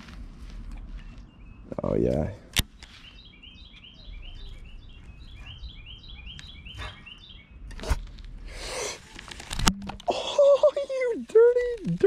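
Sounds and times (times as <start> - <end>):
songbird chirping: 0.0 - 8.9.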